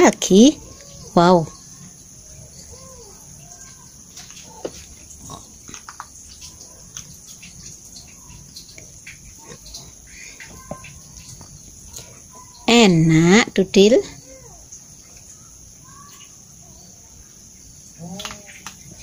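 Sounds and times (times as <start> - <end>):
kittens chewing and smacking: 2.7 - 12.6.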